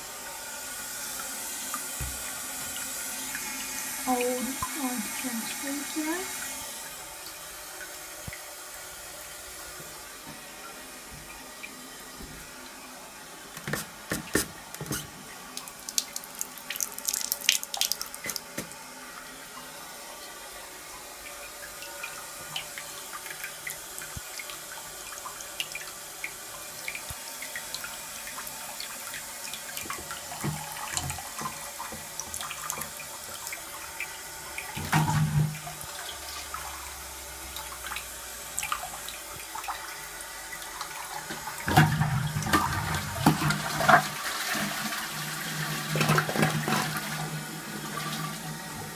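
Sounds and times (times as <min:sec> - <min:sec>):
toilet cistern refilling: 0:00.0 - 0:48.9.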